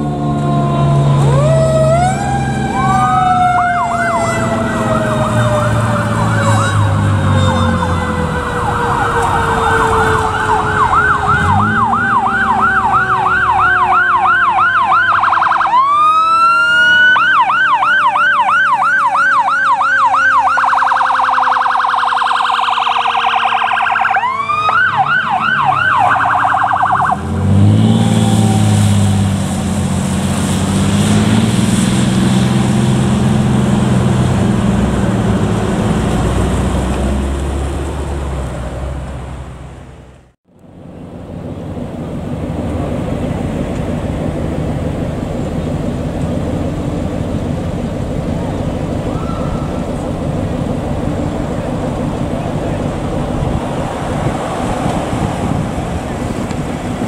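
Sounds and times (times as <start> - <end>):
electronic siren yelping: 0.0 - 28.8, 49.1 - 50.0
air horn blasts: 3.8 - 8.4, 49.1 - 50.0.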